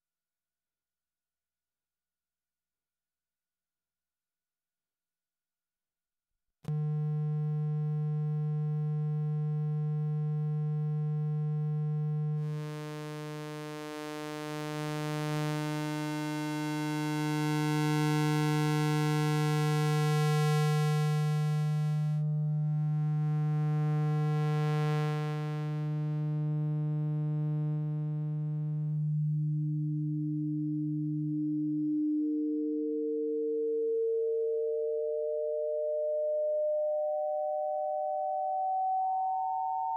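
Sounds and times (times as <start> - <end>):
low synth tone: 6.7 - 13.0, 19.1 - 39.9.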